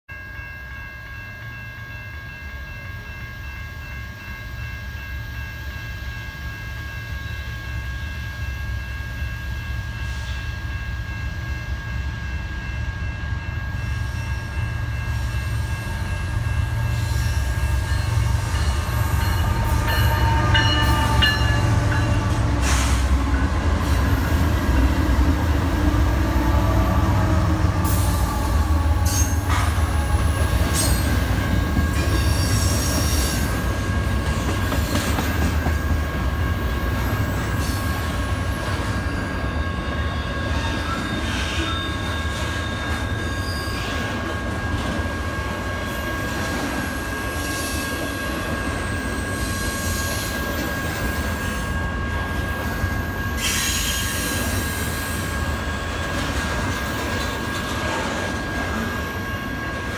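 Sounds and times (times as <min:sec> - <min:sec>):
freight train rumble: 0:00.2 - 0:59.9
train wheels rolling: 0:13.8 - 0:59.9.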